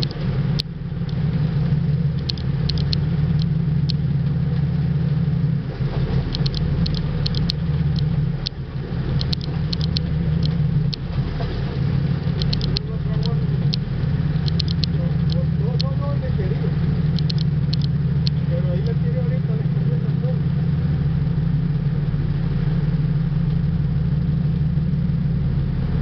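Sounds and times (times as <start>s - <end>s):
boat engine droning: 0.0s - 26.0s
short high-pitched ticks: 2.2s - 4.0s, 6.3s - 8.6s, 9.2s - 11.0s, 14.4s - 15.9s, 17.2s - 18.4s.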